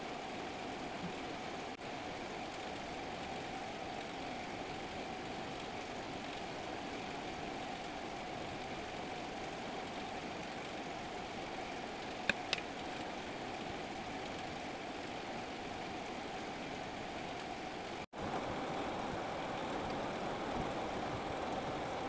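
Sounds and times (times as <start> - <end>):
steady mechanical hum: 0.0 - 22.0
sharp clicks: 12.2 - 12.7.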